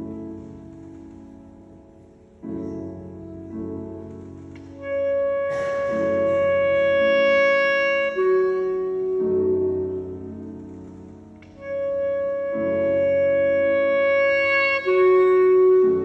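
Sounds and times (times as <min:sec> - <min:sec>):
piano chords: 0:00.0 - 0:16.0
clarinet held notes: 0:04.7 - 0:10.5, 0:11.4 - 0:16.0.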